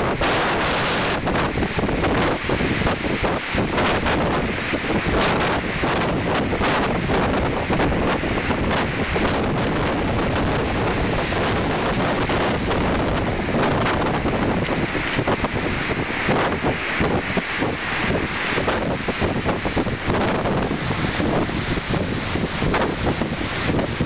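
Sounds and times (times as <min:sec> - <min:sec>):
strong wind rushing: 0:00.0 - 0:24.0
wind thumping the microphone: 0:00.0 - 0:24.0.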